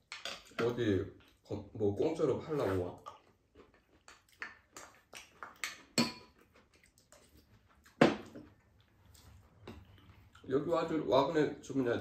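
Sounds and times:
utensils clinking on ceramic bowls: 0:05.9 - 0:06.4.

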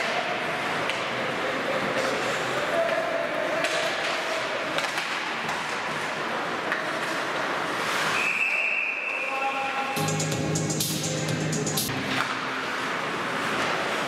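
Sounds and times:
sticks and puck clacking: 0:00.0 - 0:08.2, 0:11.9 - 0:14.0
skates scraping: 0:00.0 - 0:09.8, 0:11.9 - 0:14.0
referee's whistle: 0:08.1 - 0:10.0.

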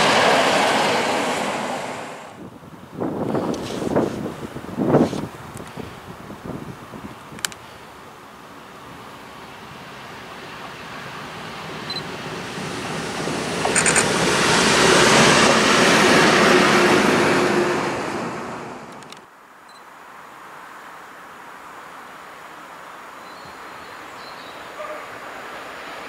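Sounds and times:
diesel locomotive passing: 0:00.0 - 0:03.2, 0:09.4 - 0:19.0, 0:24.4 - 0:26.0
sharp clicks: 0:07.4 - 0:07.6, 0:13.6 - 0:14.1, 0:18.9 - 0:19.3.

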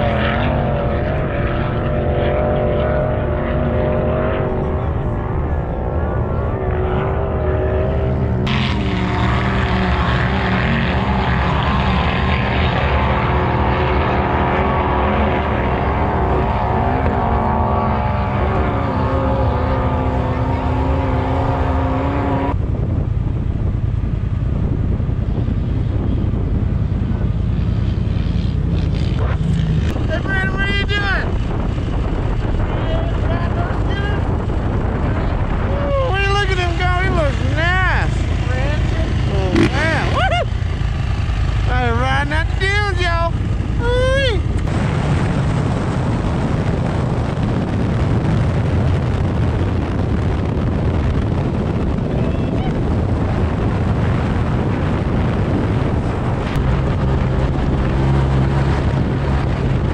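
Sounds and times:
steady pitched drone: 0:00.0 - 0:59.9
utility vehicle engine rumbling: 0:00.0 - 0:59.9
wind noise on microphone: 0:00.0 - 0:59.9.

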